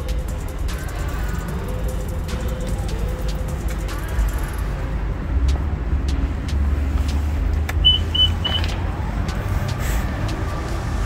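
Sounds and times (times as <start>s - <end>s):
steady low rumble: 0.0s - 11.0s
short high beeps: 7.8s - 8.8s.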